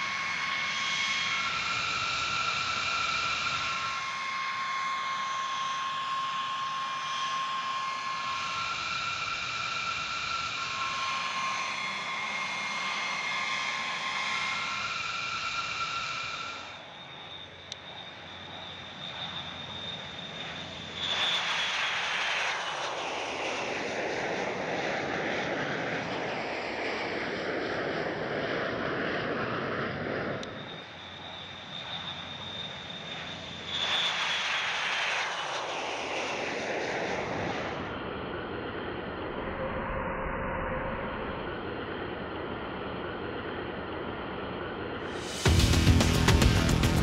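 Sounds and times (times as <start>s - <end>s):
jet engine whine: 0.0s - 47.0s
loud rush of engine noise: 45.0s - 47.0s.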